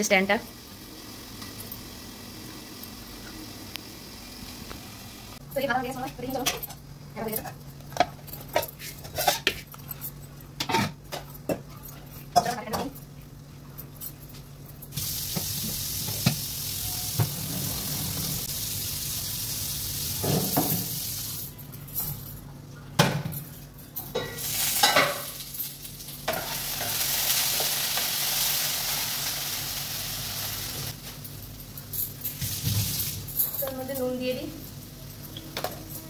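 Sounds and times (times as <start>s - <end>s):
potatoes sizzling in oil: 0.0s - 5.4s, 15.0s - 21.4s, 24.4s - 31.0s.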